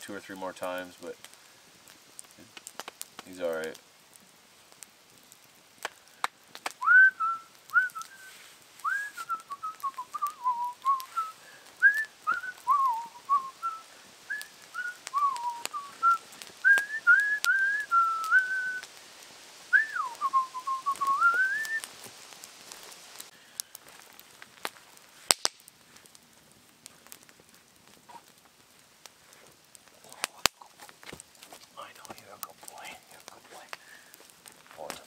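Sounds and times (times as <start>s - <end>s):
campfire crackling: 0.0s - 35.0s
man whistling: 6.8s - 18.8s, 19.7s - 21.8s.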